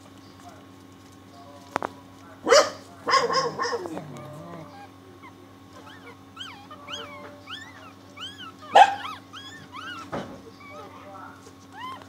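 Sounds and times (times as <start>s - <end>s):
puppies squeaking and whimpering: 3.3s - 12.0s.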